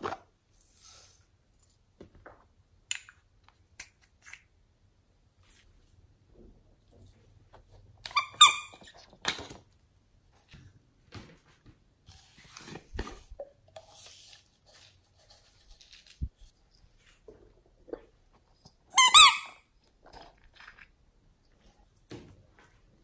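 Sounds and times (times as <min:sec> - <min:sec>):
clicks and rubbing handling noises: 0:06.9 - 0:18.9
squeeze toy squeak: 0:08.1 - 0:08.8, 0:18.9 - 0:19.6.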